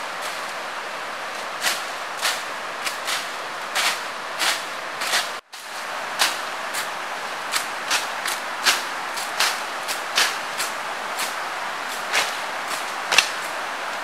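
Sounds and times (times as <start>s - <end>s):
steady background hiss: 0.0s - 14.0s
machete chopping undergrowth: 1.6s - 5.4s, 6.2s - 11.4s, 12.0s - 13.6s.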